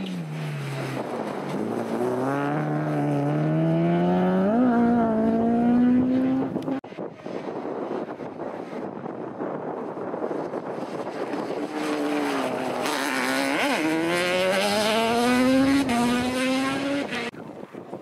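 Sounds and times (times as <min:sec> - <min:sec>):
quad bike engine accelerating: 0:00.0 - 0:06.8, 0:10.4 - 0:17.3.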